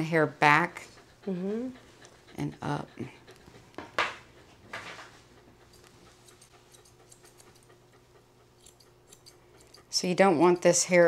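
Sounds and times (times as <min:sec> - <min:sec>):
grooming shears snipping: 0:05.0 - 0:11.0.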